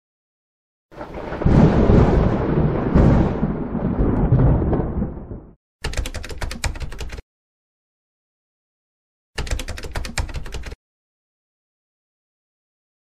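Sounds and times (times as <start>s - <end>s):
rumbling thunder: 1.0s - 5.6s
rapid keyboard clicks: 5.8s - 7.2s, 9.4s - 10.8s.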